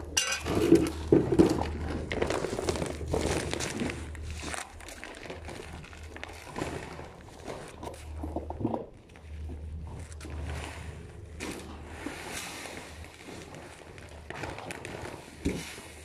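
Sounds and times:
low rumble: 0.0s - 15.4s.

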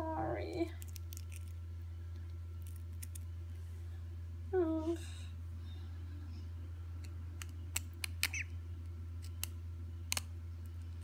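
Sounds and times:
steady low hum: 0.0s - 11.0s
duckling peeping: 8.2s - 8.6s.

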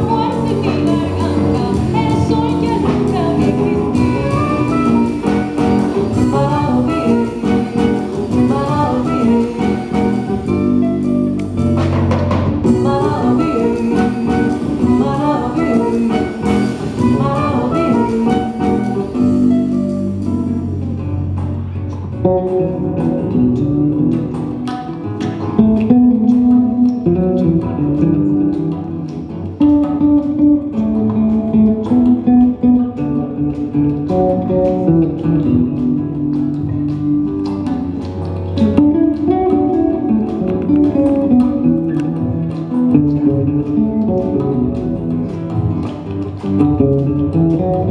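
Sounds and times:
woman singing: 0.0s - 10.5s, 12.6s - 19.4s
acoustic guitar: 0.0s - 47.9s
electric bass: 0.0s - 47.9s
hand percussion: 0.0s - 47.9s
soprano saxophone: 2.8s - 11.7s, 12.7s - 20.8s.

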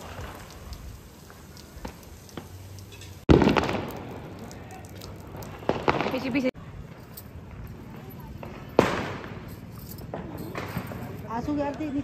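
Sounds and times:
firecrackers popping: 0.0s - 11.9s
loud firecracker bang: 3.3s - 4.4s, 5.5s - 6.6s, 8.0s - 11.1s.

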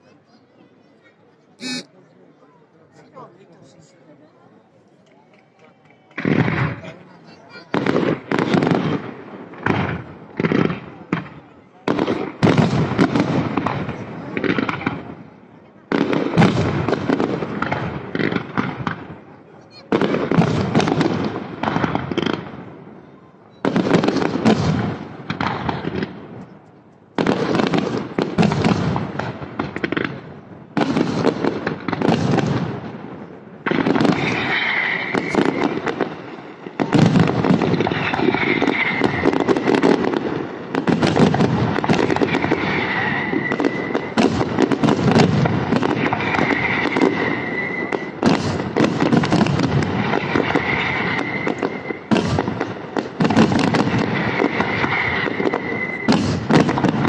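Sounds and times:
firework shells bursting: 1.6s - 1.9s.

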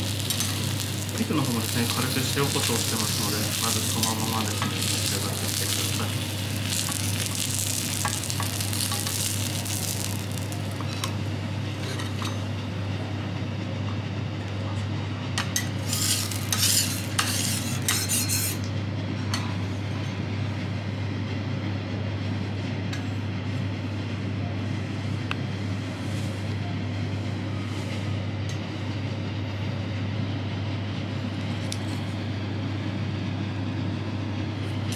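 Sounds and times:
food sizzling on a griddle: 0.0s - 11.3s, 15.8s - 18.5s
steady low hum: 0.0s - 34.9s
metal utensils clinking and scraping: 15.6s - 18.6s.

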